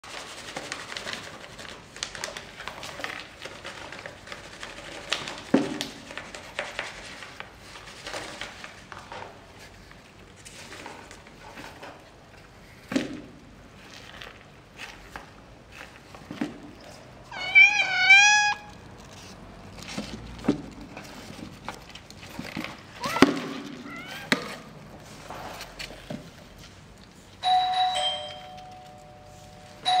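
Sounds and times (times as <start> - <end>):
two-note ding-dong chime: 27.4 - 30.0.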